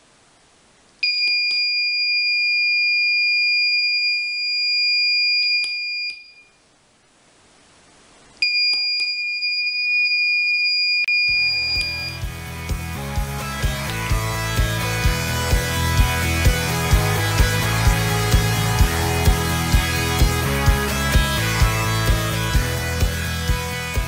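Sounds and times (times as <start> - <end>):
buzzer high-pitched tone: 1.0 - 6.6, 8.4 - 12.4
music: 11.3 - 24.0.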